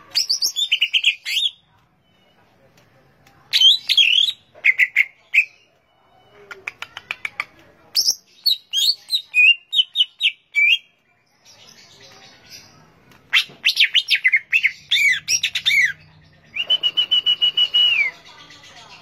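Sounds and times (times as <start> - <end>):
bird singing: 8.0 - 19.0.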